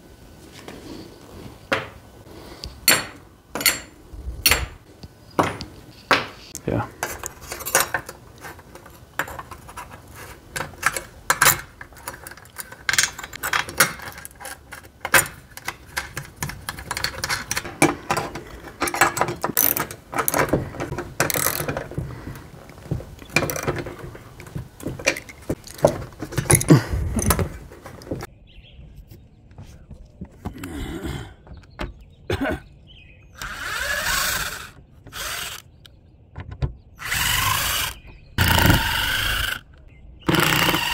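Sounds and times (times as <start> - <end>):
metal brackets clinking: 2.8 - 5.8, 6.9 - 22.0, 23.2 - 28.1
socket wrench ratcheting: 21.2 - 21.8
cordless drill running: 33.4 - 35.6, 37.0 - 39.6, 40.3 - 40.9.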